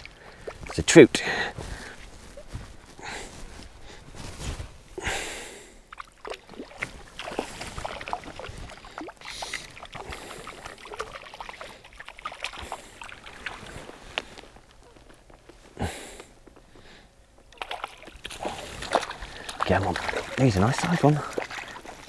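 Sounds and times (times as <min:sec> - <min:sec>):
fish splashing in water: 0:05.9 - 0:14.0, 0:17.5 - 0:22.0.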